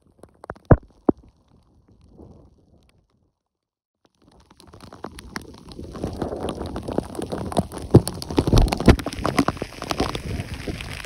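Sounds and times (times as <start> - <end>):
rain tapping on rain gear: 4.3 - 11.0.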